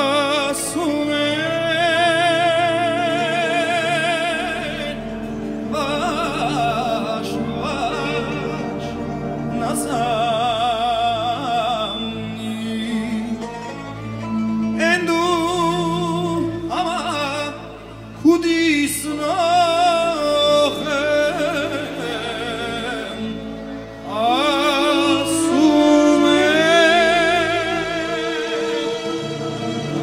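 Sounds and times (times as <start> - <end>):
band with sustained low notes: 0.0 - 30.0
man singing with vibrato: 0.0 - 30.0.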